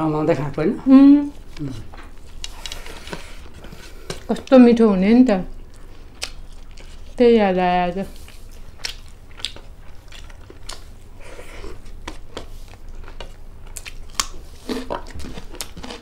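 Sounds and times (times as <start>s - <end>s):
chewing and crunching food: 5.5s - 7.4s, 8.0s - 16.0s.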